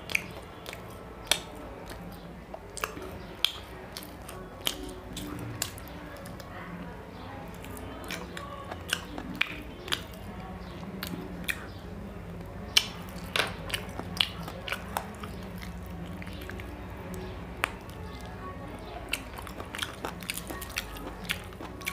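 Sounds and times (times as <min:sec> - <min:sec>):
wet chewing and lip smacking: 0:00.0 - 0:06.5, 0:07.5 - 0:21.9.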